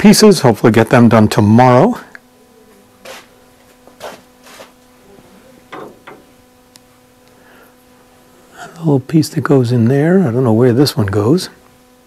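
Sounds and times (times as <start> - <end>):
faint steady hum: 0.0 - 12.0
wood scraping on workbench: 3.9 - 4.8.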